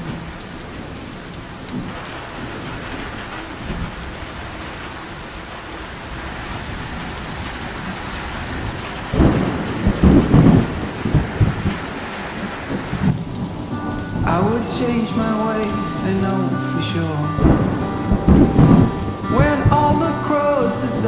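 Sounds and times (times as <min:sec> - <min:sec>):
steady rain falling: 0:00.0 - 0:21.0
low rumble of thunder: 0:01.7 - 0:14.8, 0:17.4 - 0:20.1.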